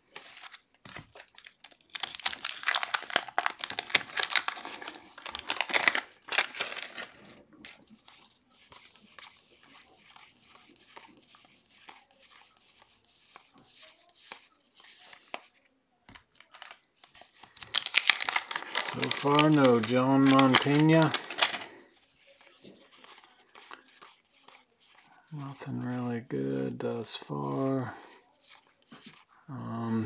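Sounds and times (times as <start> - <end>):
cardboard cards flicking and sliding: 0.1 - 1.6, 16.1 - 21.7
wax paper tearing and crinkling: 0.1 - 7.4, 16.4 - 21.8.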